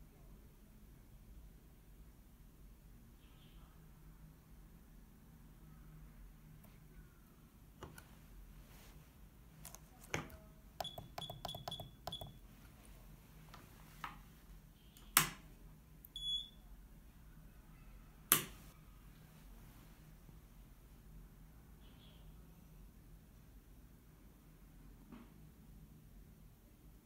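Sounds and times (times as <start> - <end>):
button clicks: 9.7 - 12.4
short high beeps: 10.8 - 12.4.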